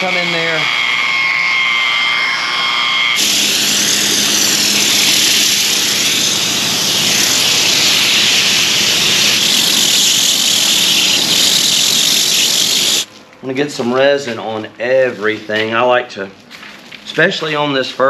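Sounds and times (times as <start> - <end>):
spray gun hissing: 3.2 - 13.1.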